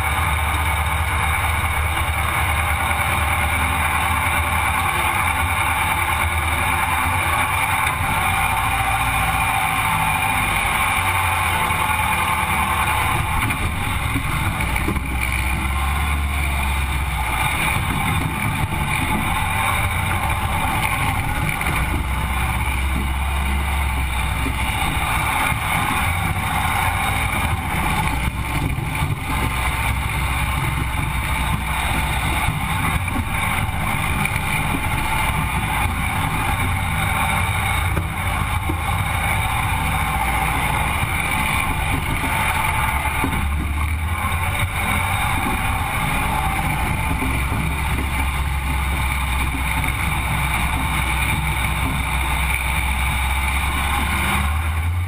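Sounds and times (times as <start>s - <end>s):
buggy engine running: 0.0s - 55.0s.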